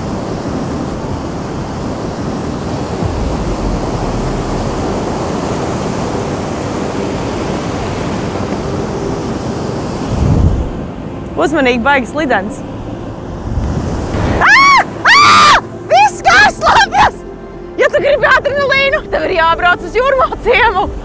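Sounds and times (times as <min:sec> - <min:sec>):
wind rumble on microphone: 0:00.0 - 0:15.1
surf breaking around pier: 0:00.0 - 0:21.0.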